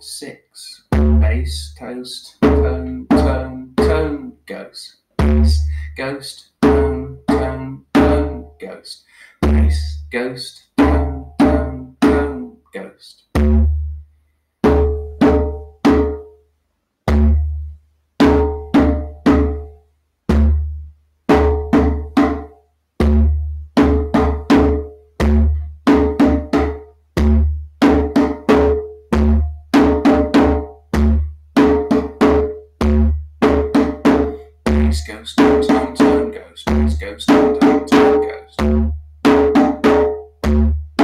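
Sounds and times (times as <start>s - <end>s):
djembe hand drumming: 0.9s - 1.6s, 2.4s - 4.2s, 5.2s - 5.7s, 6.6s - 8.5s, 9.4s - 10.0s, 10.8s - 12.4s, 13.4s - 13.8s, 14.6s - 16.3s, 17.0s - 17.6s, 18.2s - 19.7s, 20.3s - 41.0s.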